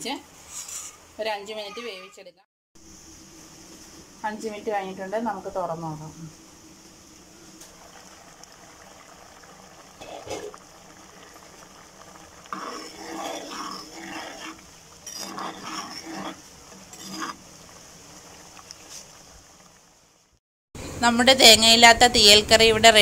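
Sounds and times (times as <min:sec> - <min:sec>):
ladle stirring thick curry: 0:07.7 - 0:19.2.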